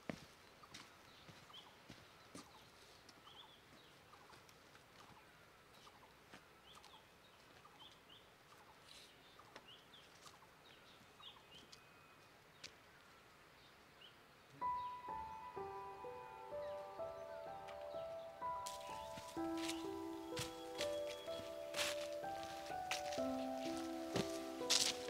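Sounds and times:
faint bird chirps: 0:13.6 - 0:23.7.

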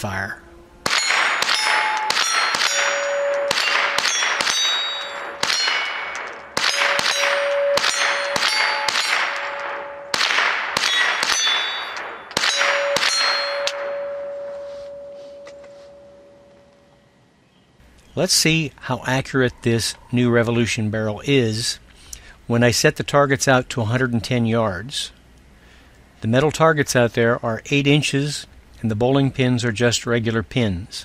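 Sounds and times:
rifle rapid fire: 0:00.8 - 0:14.0
steel targets clanging: 0:00.8 - 0:16.5.

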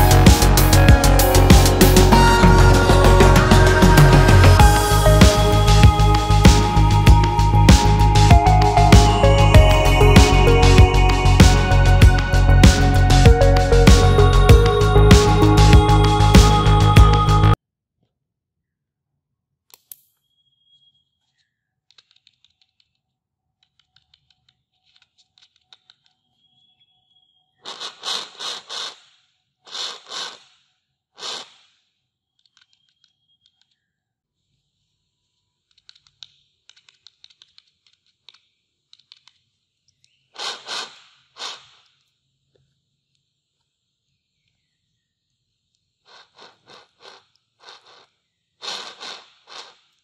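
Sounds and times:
amplified scratching and tapping: 0:00.0 - 0:17.4.

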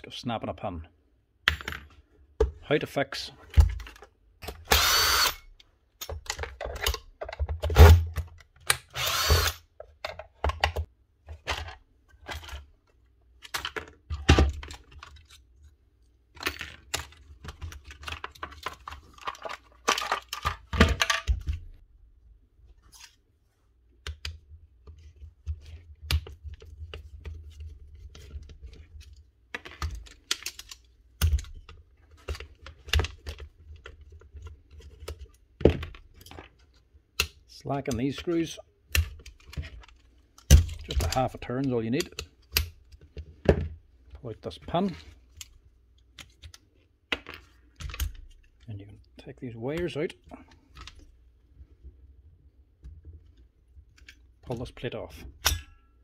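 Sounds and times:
power tool motor spinning: 0:04.7 - 0:05.4, 0:08.9 - 0:09.6
tools clicking and knocking: 0:16.4 - 0:21.6.

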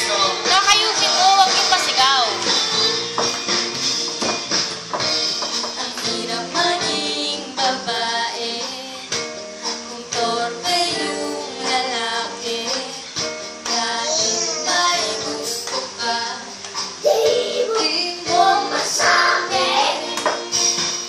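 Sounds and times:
boy singing: 0:13.8 - 0:16.4, 0:17.0 - 0:20.5.

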